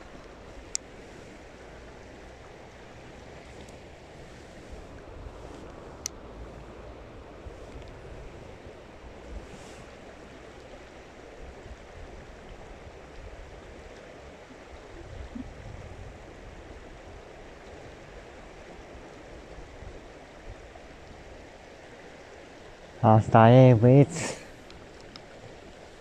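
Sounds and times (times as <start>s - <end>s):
rushing water: 0.0s - 26.0s
wind buffeting microphone: 14.8s - 18.2s.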